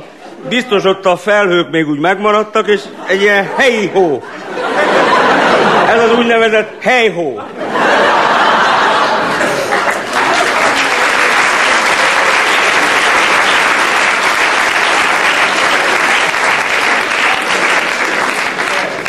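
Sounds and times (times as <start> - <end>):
audience applauding: 8.4 - 19.0.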